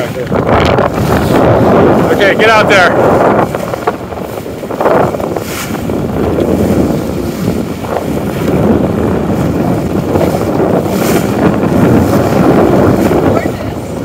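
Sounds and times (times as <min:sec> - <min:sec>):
sea rushing: 0:00.0 - 0:14.0
wind buffeting microphone: 0:00.0 - 0:14.0.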